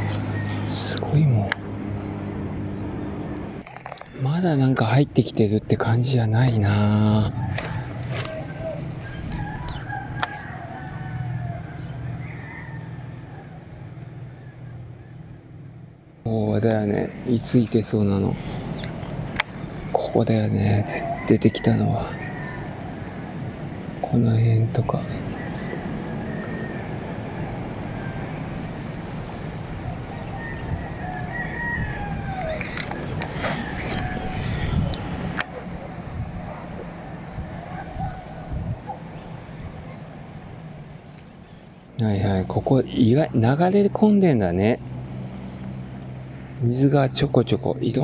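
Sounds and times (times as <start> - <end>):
roosters crowing: 0.0 - 2.7, 6.4 - 15.6, 17.2 - 24.0, 24.9 - 41.1
low outdoor rumbling: 0.0 - 48.0
steady low hum: 0.0 - 48.0.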